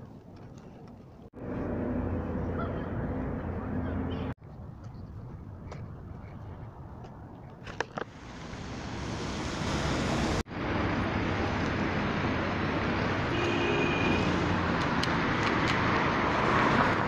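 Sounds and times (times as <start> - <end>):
cars passing: 1.4 - 4.4, 8.1 - 17.0.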